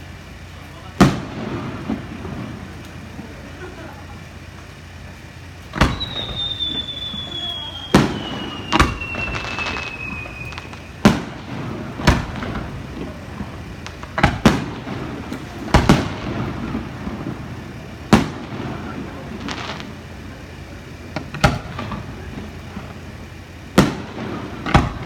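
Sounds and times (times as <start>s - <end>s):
fireworks bangs: 0.0s - 25.0s
high falling whistle: 5.8s - 11.1s.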